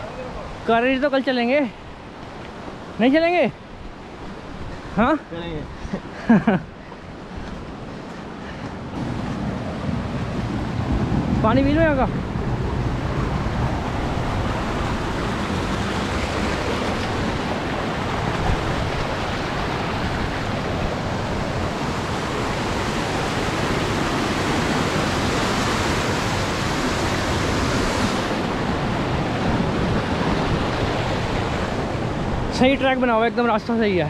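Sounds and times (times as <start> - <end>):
mountain stream rushing: 0.0 - 34.0.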